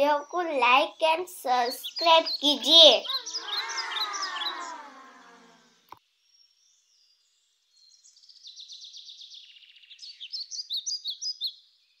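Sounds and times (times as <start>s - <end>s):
birds twittering: 0.0s - 5.8s
sharp bird chirps: 1.6s - 5.7s.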